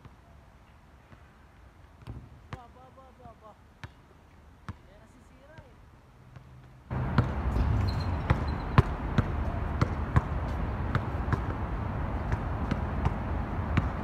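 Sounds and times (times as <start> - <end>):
basketball bouncing on hard court: 2.0 - 2.7, 6.3 - 14.0.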